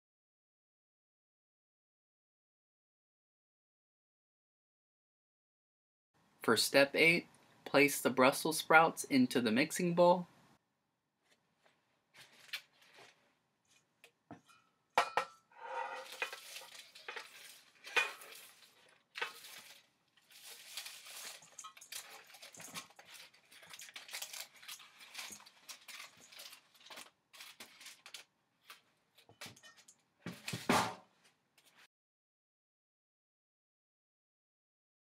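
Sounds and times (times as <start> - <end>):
spatula scraping into metal bowl: 14.4 - 19.7.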